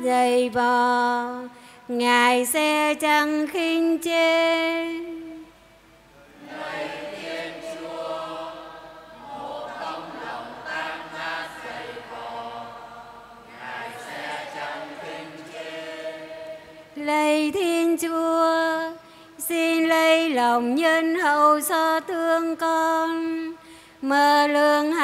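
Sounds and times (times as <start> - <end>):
congregation singing a chant: 6.2 - 18.8.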